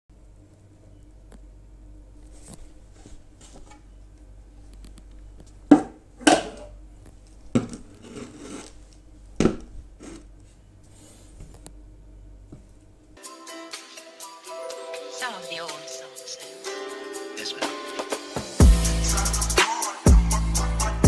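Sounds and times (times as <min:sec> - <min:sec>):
tin sliding on plastic table: 0:07.6 - 0:08.8, 0:10.0 - 0:10.2.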